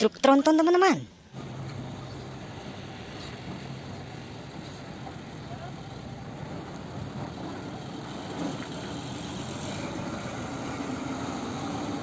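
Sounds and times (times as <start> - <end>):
truck engine driving past: 1.3 - 12.0.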